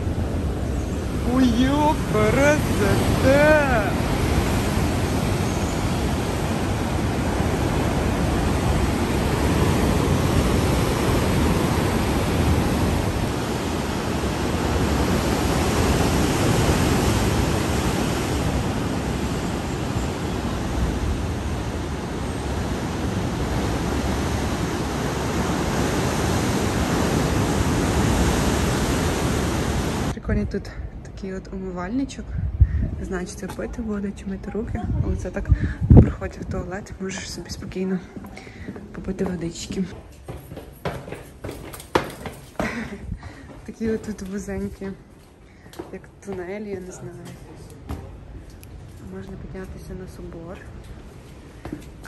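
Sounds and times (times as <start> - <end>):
sea waves surging in rock cleft: 0.0 - 30.2.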